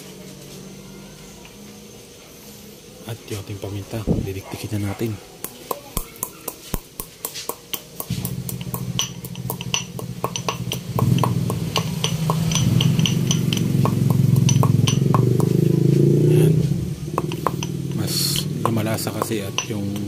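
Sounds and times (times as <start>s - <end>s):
pestle pounding in stone mortar: 5.4s - 16.2s, 17.1s - 20.0s
low steady rumble: 8.1s - 20.0s.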